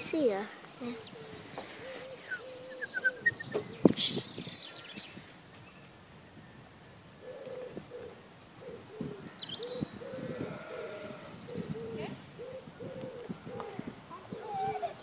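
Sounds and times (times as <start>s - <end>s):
pigeon cooing: 0.9s - 3.9s, 7.2s - 15.0s.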